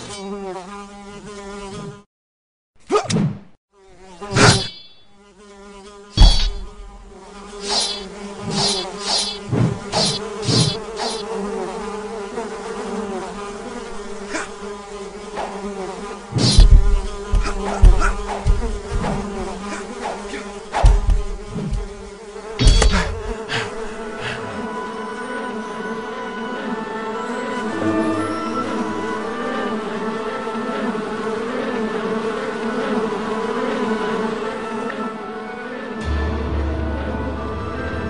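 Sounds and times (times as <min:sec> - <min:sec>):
insect buzz: 0:00.0 - 0:02.1, 0:03.7 - 0:36.1
sharp swishes: 0:04.3 - 0:05.0, 0:06.2 - 0:07.0, 0:07.6 - 0:11.3, 0:16.4 - 0:22.0
heavy thuds: 0:06.2 - 0:07.1, 0:16.4 - 0:23.4.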